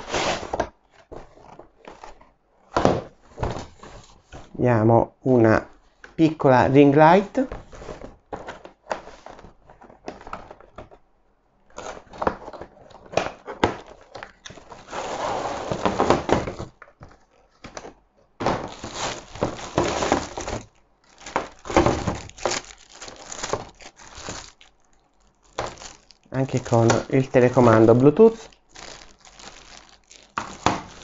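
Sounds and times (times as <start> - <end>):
cardboard and parts knocking: 15.6 - 24.6, 25.5 - 26.0, 28.8 - 31.0
plastic packaging crinkling: 18.5 - 31.0.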